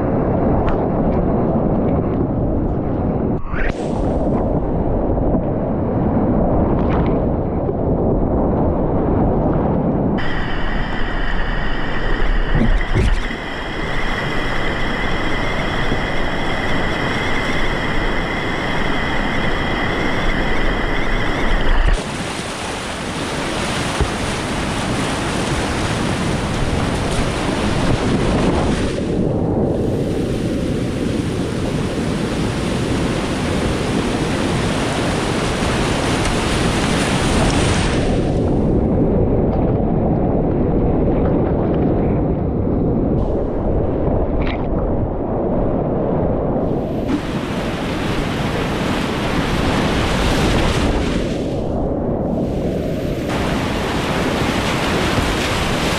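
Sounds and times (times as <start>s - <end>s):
whitewater rushing: 10.2s - 29.2s, 30.8s - 38.3s, 46.8s - 51.8s, 52.4s - 55.9s.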